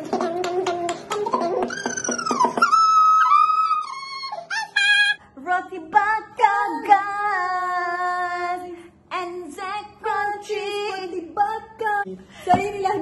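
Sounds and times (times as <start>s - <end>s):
woman singing: 5.4s - 13.0s.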